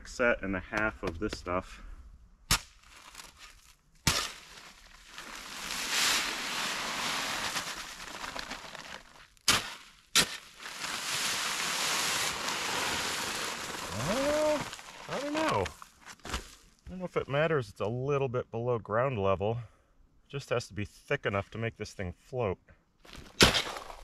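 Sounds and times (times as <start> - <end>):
dry concrete mix pouring: 4.0 - 16.4
bags knocking and slapping: 4.1 - 16.6.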